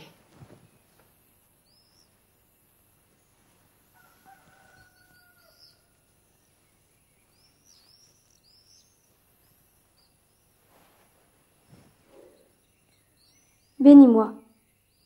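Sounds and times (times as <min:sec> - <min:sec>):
faint birds chirping: 0:00.0 - 0:15.0
faint rooster crow: 0:03.8 - 0:06.2.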